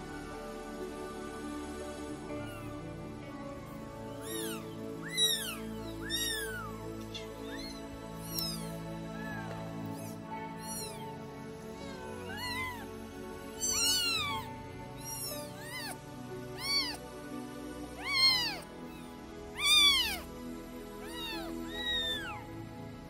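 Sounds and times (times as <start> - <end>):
kitten mewing: 4.1 - 12.9, 13.5 - 16.0, 16.6 - 17.0, 18.0 - 20.3, 21.0 - 22.4.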